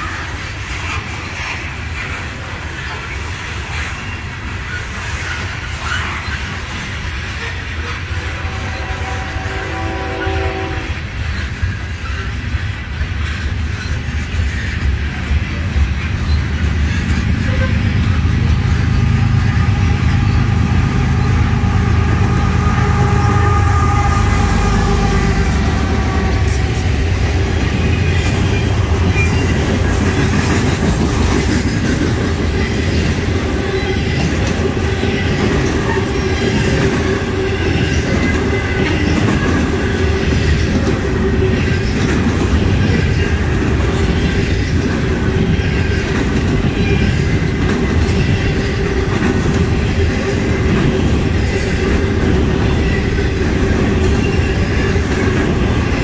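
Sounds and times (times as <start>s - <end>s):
train wheel rumble: 0.0s - 56.0s
wheels clicking over rail joints: 24.9s - 56.0s.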